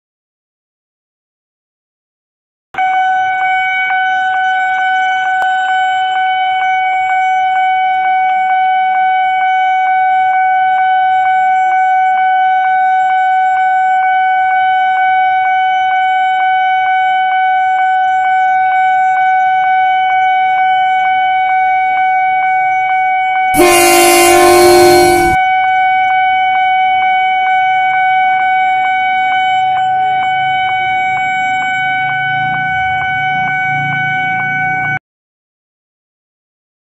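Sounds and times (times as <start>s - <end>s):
level crossing alarm pulsing: 23.6s - 25.4s.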